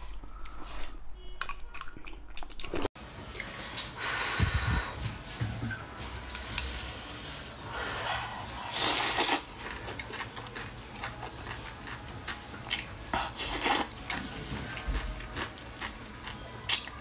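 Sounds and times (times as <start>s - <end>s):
person slurping noodles: 8.7s - 9.5s, 13.3s - 14.0s.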